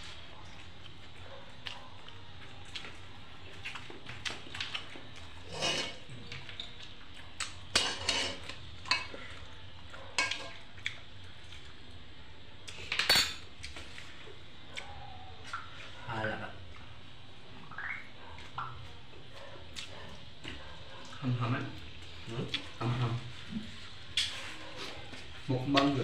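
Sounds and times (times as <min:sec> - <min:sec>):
clinks and scrapes on bowl: 0:05.4 - 0:06.8, 0:07.7 - 0:09.2.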